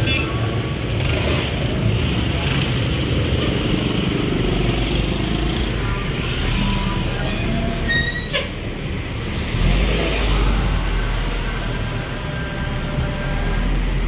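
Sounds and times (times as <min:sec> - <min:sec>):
passing cars and motorcycles: 0:00.0 - 0:14.0.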